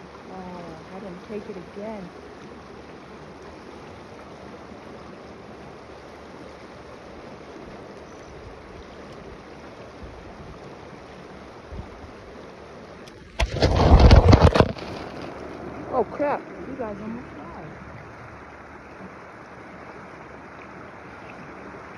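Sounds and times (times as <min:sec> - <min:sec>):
fast-flowing creek rushing: 0:00.0 - 0:21.9
phone toppling over: 0:13.4 - 0:15.5.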